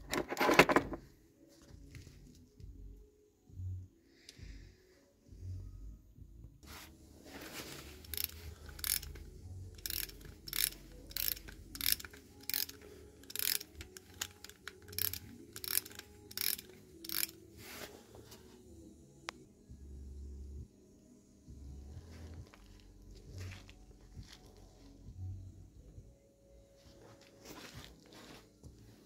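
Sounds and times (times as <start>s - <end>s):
clockwork ratchet clicking: 8.0s - 17.4s.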